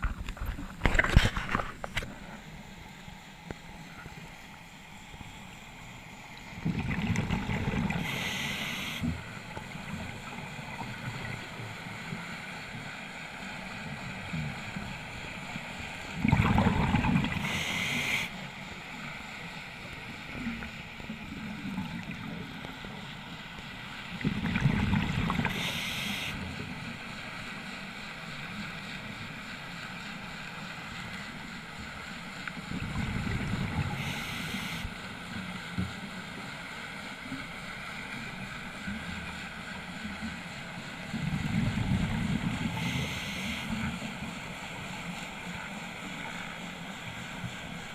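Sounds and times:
steady low background noise: 0:02.0 - 0:47.9
exhaled bubbles rumbling: 0:06.5 - 0:08.4, 0:16.1 - 0:17.7, 0:24.1 - 0:25.8, 0:32.6 - 0:34.2, 0:41.2 - 0:43.0
regulator hiss: 0:07.8 - 0:10.4, 0:17.3 - 0:21.2, 0:25.4 - 0:28.4, 0:30.2 - 0:35.4, 0:40.4 - 0:47.9.

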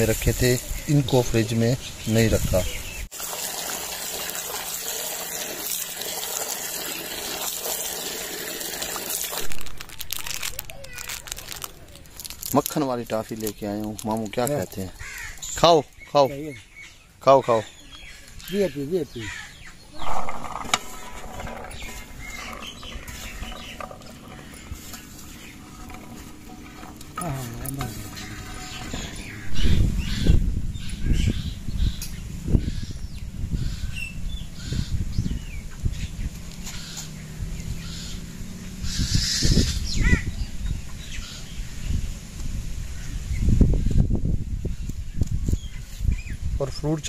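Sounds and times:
water pouring into metal bowl: 0:03.1 - 0:10.6, 0:20.0 - 0:29.5
rush of kernels: 0:03.1 - 0:14.8, 0:20.0 - 0:29.5
corn kernels rattling on metal tray: 0:08.8 - 0:14.8.

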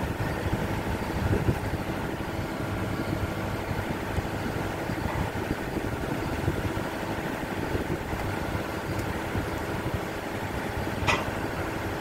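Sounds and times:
ship engines rumbling: 0:00.0 - 0:12.0.

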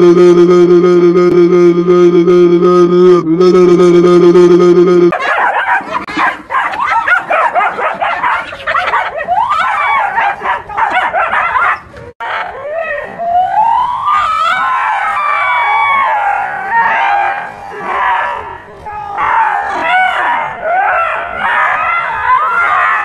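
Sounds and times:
dog barking and yelping: 0:05.1 - 0:12.5.

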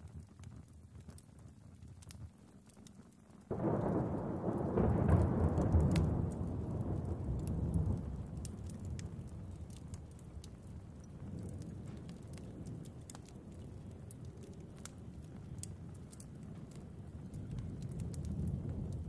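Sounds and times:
faint crackling and ticking: 0:00.0 - 0:19.0
thunder rolling: 0:03.5 - 0:12.9.

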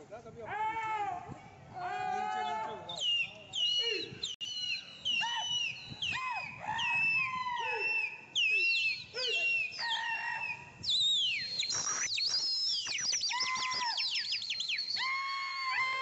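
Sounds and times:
shrill whistled calls: 0:02.7 - 0:16.0
rapid falling chirps: 0:10.9 - 0:15.0.

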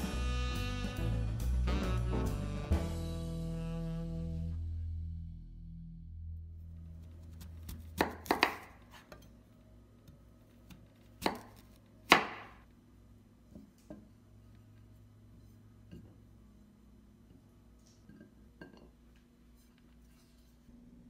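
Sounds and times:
knife chopping on cutting board: 0:07.4 - 0:09.2, 0:10.6 - 0:12.6.

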